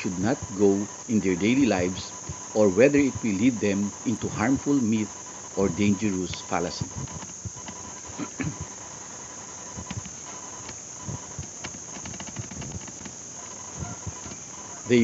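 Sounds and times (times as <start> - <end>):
high-pitched background whine: 0.0 - 15.0
mouse wheel clicks: 11.4 - 13.1.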